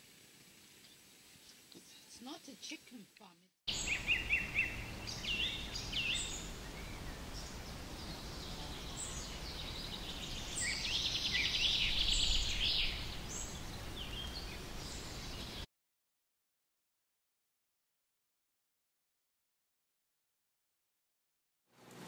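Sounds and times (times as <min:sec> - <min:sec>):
bird trill: 0:03.7 - 0:15.6
low outdoor rumble: 0:03.7 - 0:15.6
birds chirping: 0:03.7 - 0:15.7.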